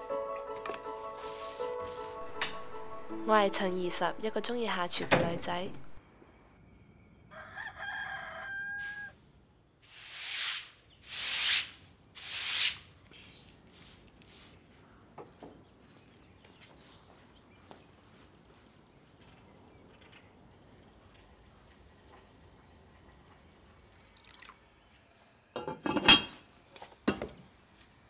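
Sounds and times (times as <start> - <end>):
rooster crowing: 7.3 - 9.2.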